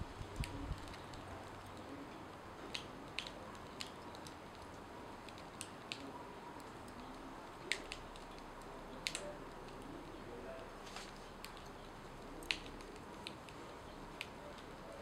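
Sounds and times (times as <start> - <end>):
tortilla crackling on griddle: 0.0 - 10.1, 10.7 - 15.0.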